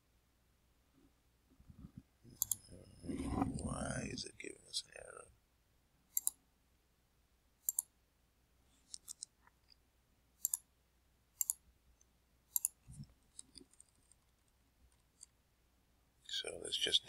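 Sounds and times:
computer mouse clicks: 2.4 - 2.7, 6.1 - 6.4, 7.6 - 7.9, 8.8 - 9.4, 10.4 - 10.7, 11.4 - 11.6, 12.5 - 14.3.

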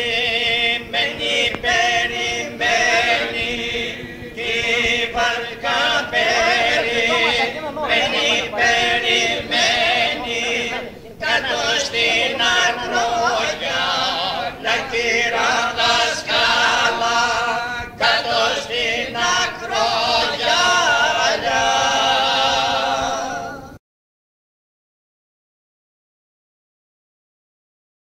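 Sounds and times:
men singing unaccompanied: 0.0 - 23.8.

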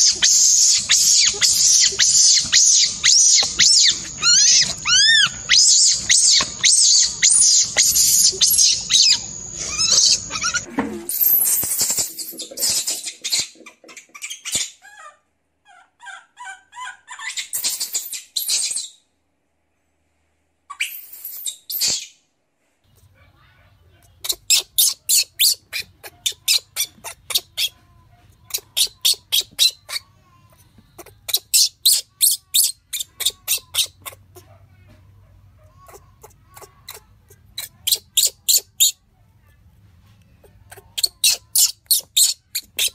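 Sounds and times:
high squeaks: 0.0 - 14.8, 40.7 - 42.9
baby monkey screeching: 0.0 - 19.0, 20.7 - 22.2, 24.2 - 27.8, 28.5 - 30.2, 31.0 - 34.5, 35.8 - 39.0, 40.4 - 42.9
faint low hum: 22.3 - 31.4, 32.0 - 42.9.

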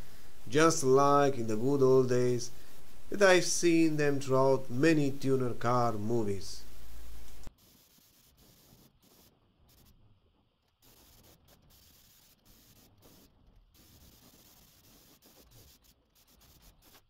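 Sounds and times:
faint hiss: 0.0 - 17.0.

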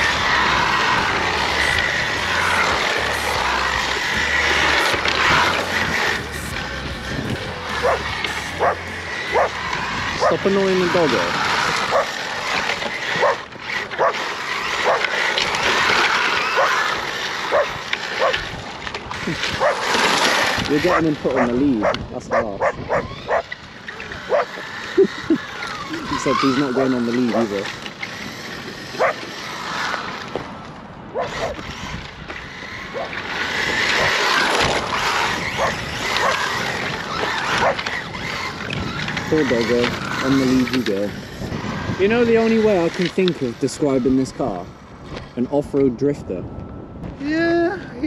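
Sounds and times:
steady rushing noise: 0.0 - 48.0
dog yelping: 7.8 - 9.6, 10.2 - 10.4, 11.7 - 12.2, 13.1 - 15.2, 16.2 - 18.4, 19.5 - 19.9, 20.9 - 23.6, 24.2 - 25.2, 29.0 - 29.3, 31.1 - 31.6, 32.8 - 33.2, 35.4 - 36.6, 37.2 - 37.9.

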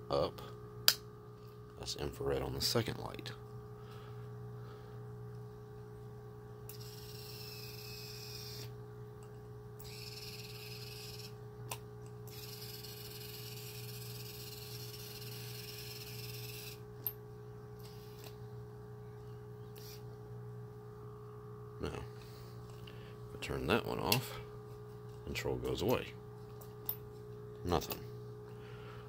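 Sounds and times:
steady electrical hum: 0.0 - 29.0
motor whirring: 6.7 - 8.8, 9.8 - 11.4, 12.3 - 16.8, 19.7 - 20.1.

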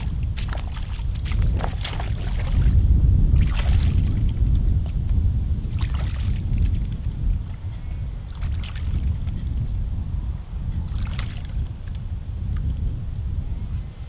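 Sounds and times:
wading splashes in river water: 0.0 - 5.0, 5.6 - 7.6, 8.2 - 9.6, 10.8 - 12.0
wind rumbling on microphone: 0.0 - 14.0.

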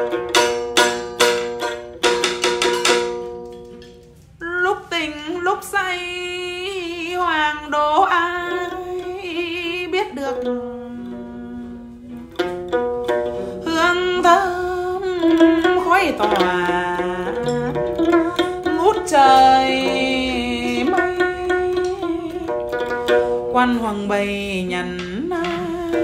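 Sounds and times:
plucked lute: 0.0 - 26.0
man singing with vibrato: 13.6 - 22.6, 23.5 - 26.0.

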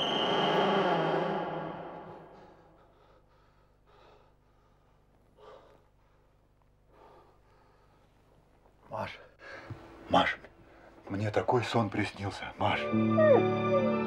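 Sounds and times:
man breathing heavily: 2.1 - 8.3
music: 12.6 - 14.0.

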